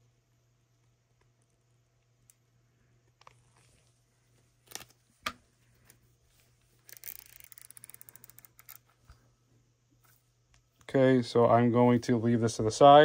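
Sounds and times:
rotary wheel clicking: 6.8s - 8.9s.

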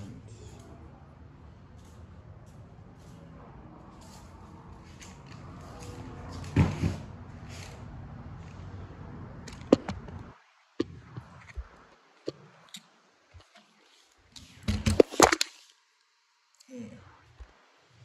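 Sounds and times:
phone handling rubbing and bumps: 9.6s - 10.2s.

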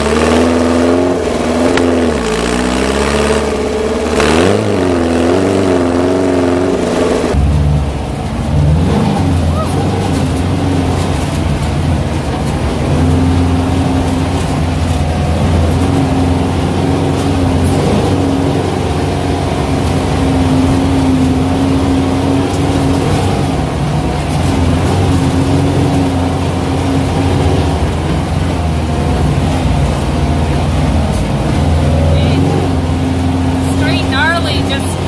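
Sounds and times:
car engine droning: 0.0s - 35.0s.

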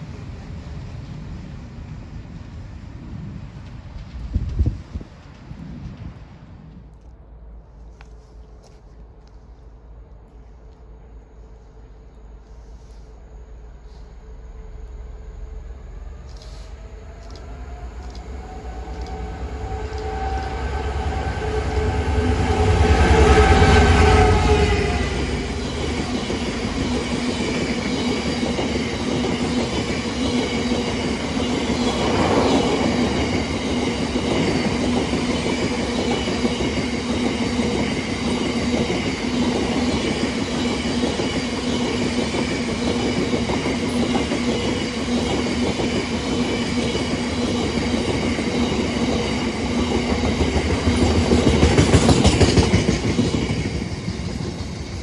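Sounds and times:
diesel locomotive rumble: 0.0s - 36.2s
train wheels rolling on rails: 0.0s - 55.0s
faint high whine: 30.4s - 35.7s.

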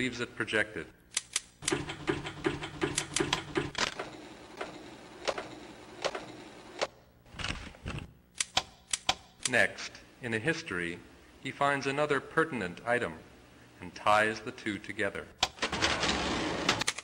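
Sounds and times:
fast typewriter-like clicks: 1.2s - 4.7s, 16.7s - 17.0s
steady machine hum: 1.6s - 7.3s.

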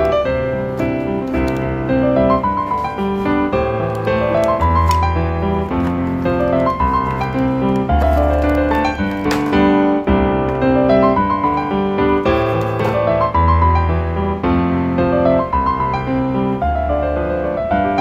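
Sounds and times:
keyboard melody: 0.0s - 18.0s.

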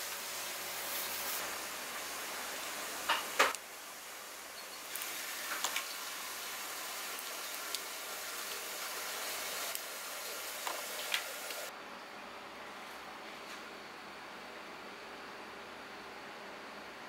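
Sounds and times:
steady hiss: 0.0s - 11.7s.

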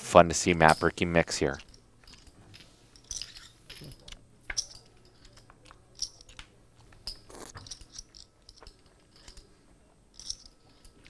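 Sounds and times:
poker chips and cards clicking: 0.6s - 9.5s.

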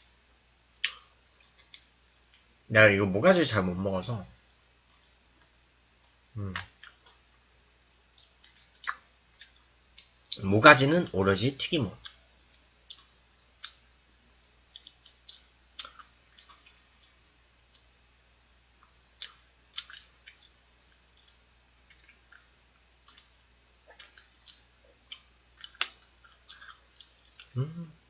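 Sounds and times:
crunchy chewing of fried food: 8.0s - 10.4s, 11.9s - 14.0s, 14.6s - 27.6s.

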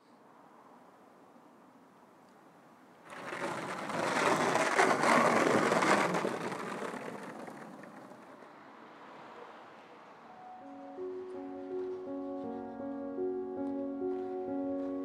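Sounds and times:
skateboard wheels rolling on pavement: 3.0s - 9.7s, 10.6s - 15.0s.

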